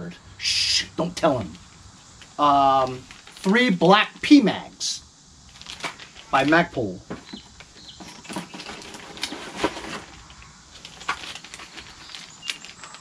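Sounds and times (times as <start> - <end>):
plastic bags crinkling: 2.1 - 3.5, 5.5 - 6.5, 7.5 - 13.0.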